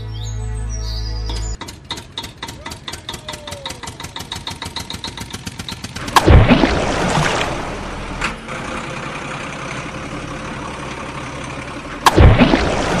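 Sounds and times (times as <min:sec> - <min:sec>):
toy vehicles splashing into water: 0:06.0 - 0:08.2, 0:12.0 - 0:13.0.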